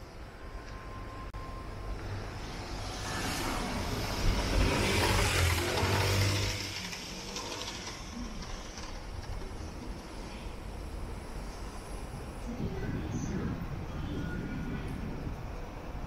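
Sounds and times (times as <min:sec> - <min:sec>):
street noise: 0:00.0 - 0:16.0
vehicle passing by: 0:01.8 - 0:08.9.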